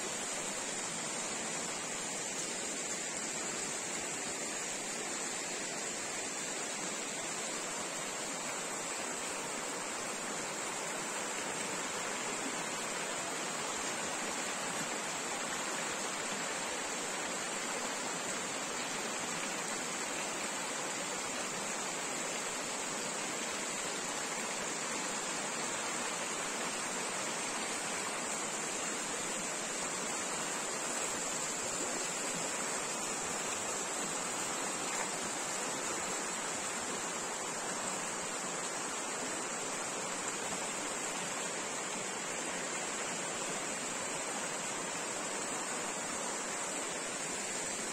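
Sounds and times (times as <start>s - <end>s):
stream flowing: 0.0s - 47.9s.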